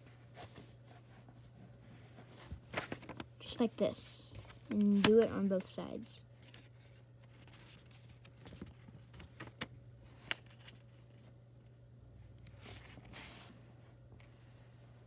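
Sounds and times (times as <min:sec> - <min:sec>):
paper rustling: 0:02.1 - 0:03.3, 0:06.4 - 0:11.4
paper crinkling: 0:06.4 - 0:11.7.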